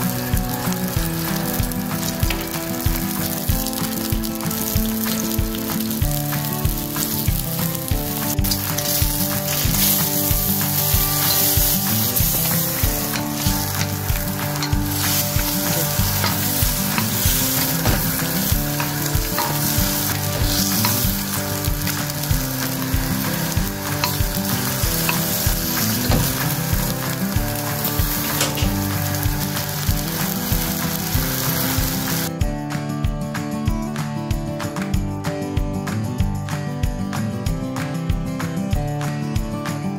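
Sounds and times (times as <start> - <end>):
sauce sizzling in a pan: 0.0 - 32.3
spatulas scraping and clicking: 8.2 - 29.0.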